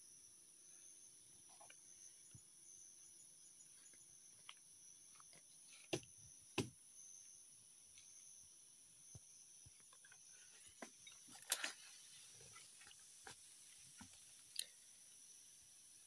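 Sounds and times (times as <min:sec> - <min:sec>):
insects chirring: 0:00.0 - 0:16.0
faint ticks: 0:14.0 - 0:14.8.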